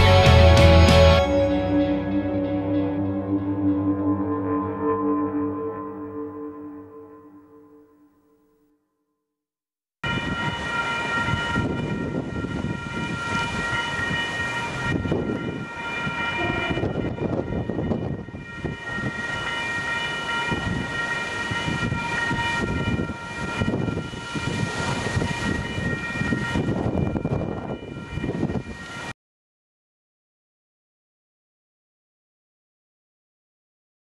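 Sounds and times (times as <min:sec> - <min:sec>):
gusty wind buffeting microphone: 0:10.0 - 0:29.1
steady high-pitched alarm tone: 0:10.0 - 0:29.1.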